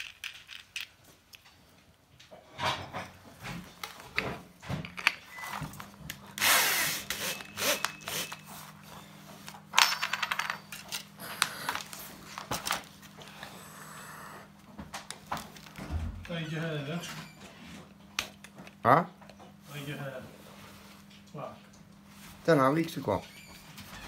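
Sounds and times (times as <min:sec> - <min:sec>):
faint steady hum: 0:00.0 - 0:24.0.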